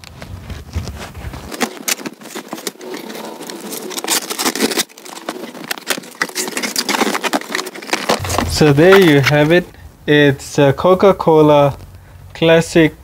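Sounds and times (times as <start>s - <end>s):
cardboard box being opened: 0.9s - 8.4s.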